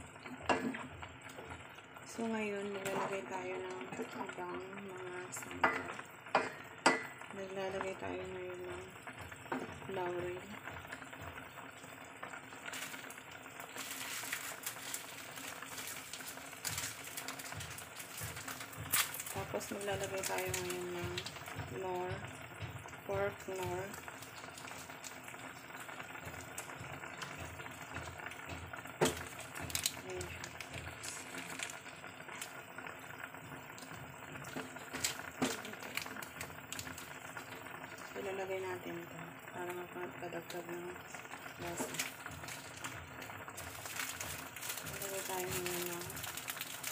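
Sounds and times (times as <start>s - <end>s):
liquid boiling with crackling fizz: 0.0s - 46.9s.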